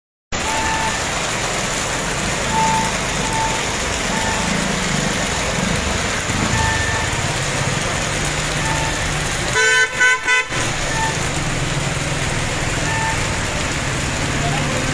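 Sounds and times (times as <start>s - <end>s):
short high beeps: 0.4s - 1.0s, 2.5s - 4.6s, 6.3s - 7.2s
heavy rain hissing: 0.4s - 14.9s
vehicle engines rumbling: 0.4s - 14.9s
car horn toot: 6.3s - 7.3s, 8.6s - 11.2s, 12.8s - 13.6s.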